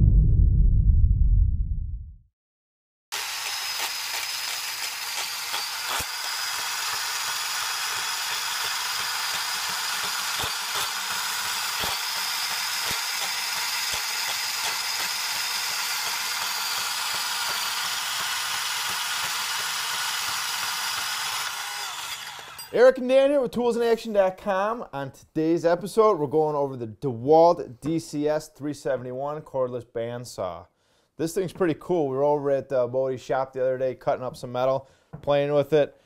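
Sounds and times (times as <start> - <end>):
bandsaw cutting metal: 3.1 - 23.0.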